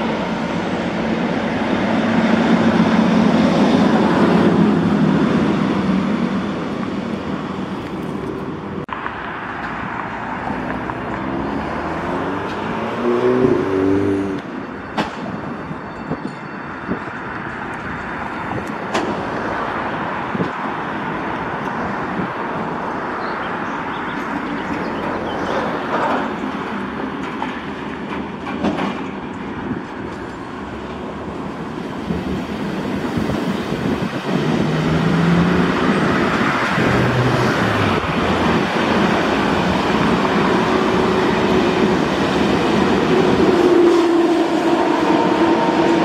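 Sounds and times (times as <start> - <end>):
high-speed train approaching: 0.0 - 46.0
freight wagons rumbling and knocking: 24.1 - 43.6.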